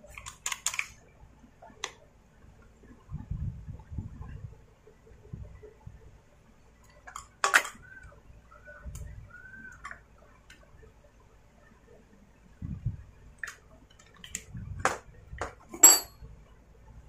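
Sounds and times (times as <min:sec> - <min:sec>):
parts clattering: 0:14.9 - 0:16.1.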